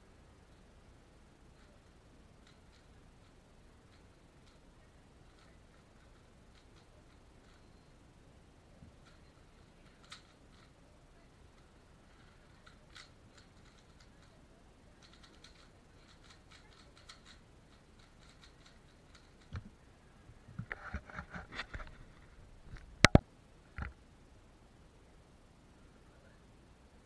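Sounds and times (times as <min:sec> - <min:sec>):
puzzle cube clicking: 0:09.0 - 0:10.8, 0:11.5 - 0:14.4, 0:15.0 - 0:19.7.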